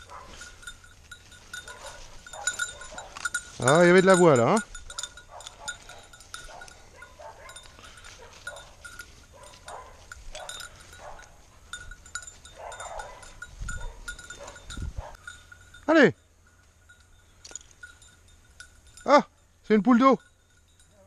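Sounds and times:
dry leaves rustling: 0.0 - 15.8
collar bell jingling: 0.0 - 21.0.

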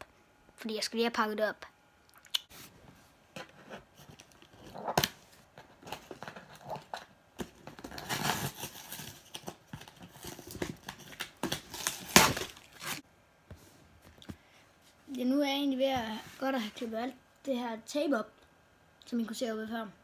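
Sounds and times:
scissors scraping packing tape: 6.0 - 13.0.

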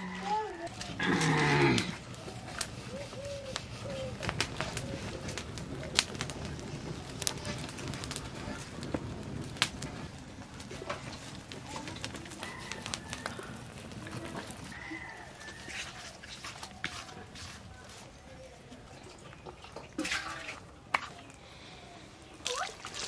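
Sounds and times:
birds calling: 0.0 - 5.9
fire crackling and popping: 0.0 - 23.0.

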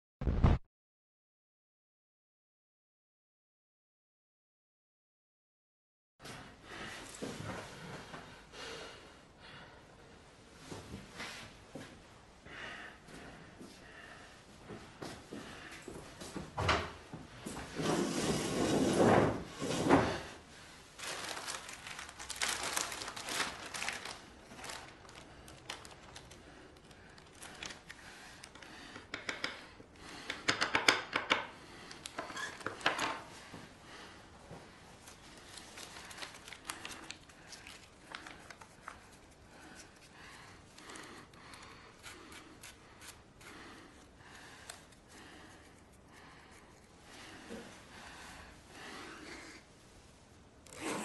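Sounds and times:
blade scraping a table: 17.8 - 19.9
plastic bag crinkling: 21.0 - 28.0, 35.0 - 39.2.

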